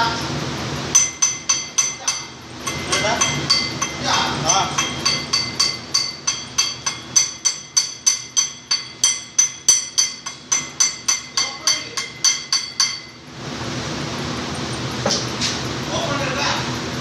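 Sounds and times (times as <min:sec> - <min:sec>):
hammering on metal: 0:01.0 - 0:13.2.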